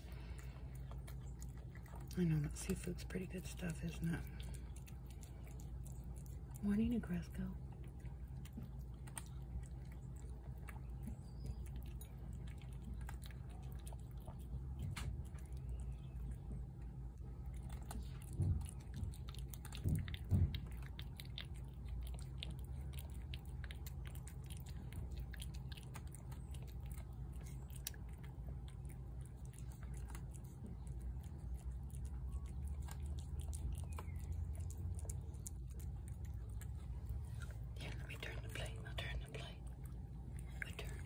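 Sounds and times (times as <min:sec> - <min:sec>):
cat chewing wet food: 0:00.0 - 0:41.0.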